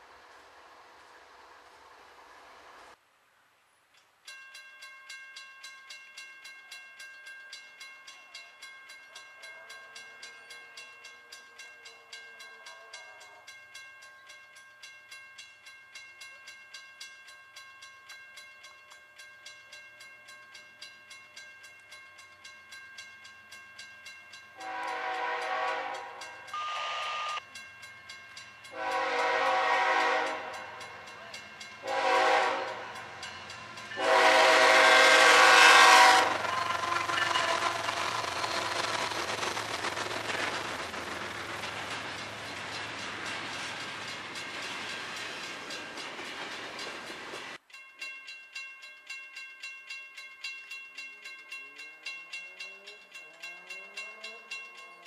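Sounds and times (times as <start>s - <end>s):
crossing warning bell ringing: 4.2s - 55.0s
locomotive horn blasts: 24.6s - 27.4s, 28.7s - 30.8s, 31.8s - 33.0s, 34.0s - 37.2s.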